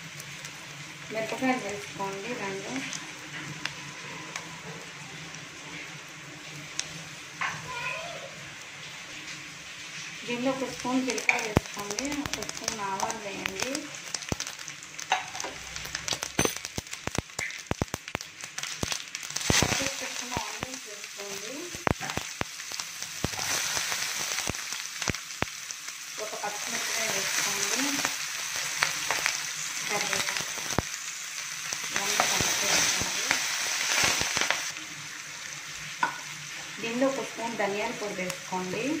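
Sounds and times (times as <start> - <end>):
loud sizzling hiss: 0.0 - 39.0
spices popping in hot oil: 0.0 - 39.0.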